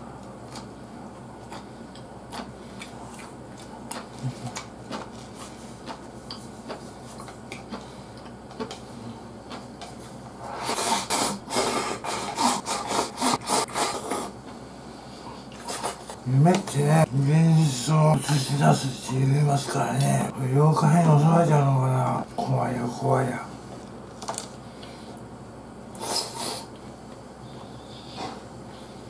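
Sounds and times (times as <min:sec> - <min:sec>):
quiet chewing: 0:00.2 - 0:14.3
loud rapid slurping: 0:10.5 - 0:14.3.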